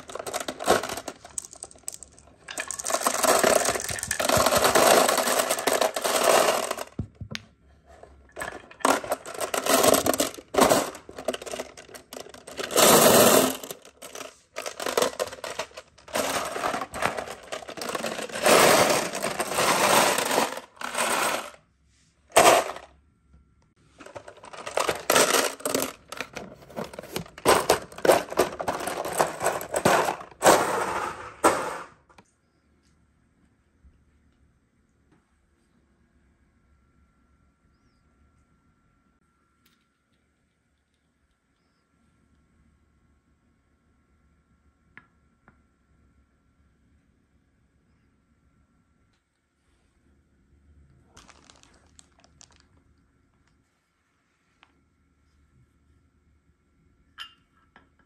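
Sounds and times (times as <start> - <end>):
glass marbles clattering in bottle: 0.0 - 6.9, 8.3 - 21.5.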